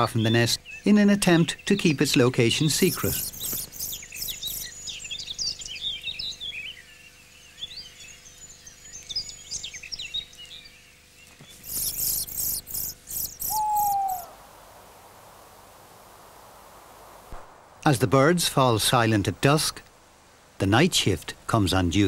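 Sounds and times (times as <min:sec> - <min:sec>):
nestlings begging calls: 0:00.0 - 0:07.1, 0:07.7 - 0:14.9
loud rasping bird calls: 0:11.4 - 0:14.4
owl hoot: 0:11.6 - 0:14.9.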